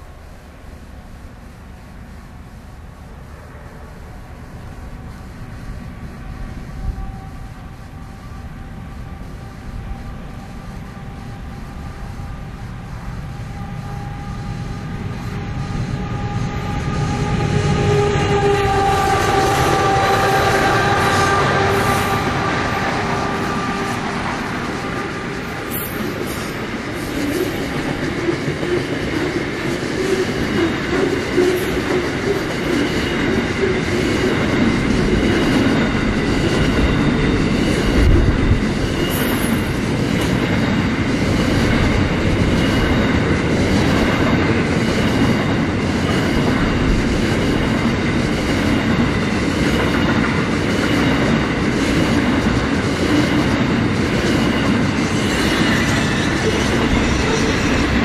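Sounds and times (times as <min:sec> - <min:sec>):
train wheels rumbling on rail: 0:00.0 - 0:58.0
faint high ringing from wheels: 0:38.8 - 0:43.4.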